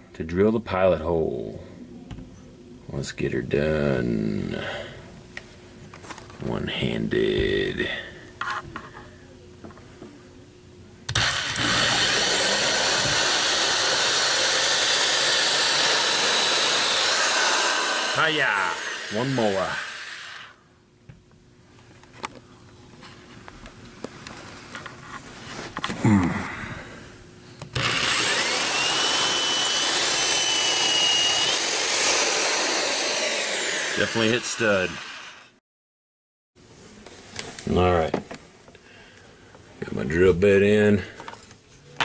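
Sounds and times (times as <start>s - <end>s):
electric drill boring into wall: 11.1s - 20.6s, 27.8s - 35.6s.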